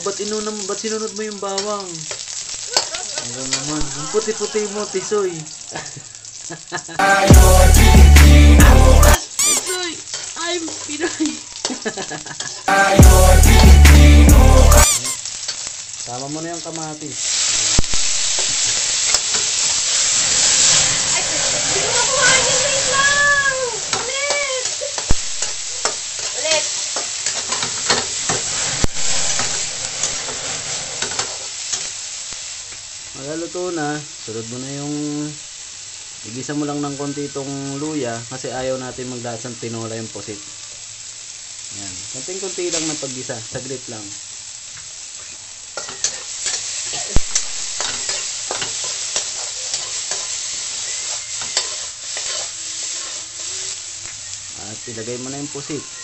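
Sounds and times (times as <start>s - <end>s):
vegetables sizzling in oil: 0.0s - 56.0s
metal spatula scraping wok: 9.0s - 11.8s, 18.2s - 31.9s, 45.2s - 53.9s.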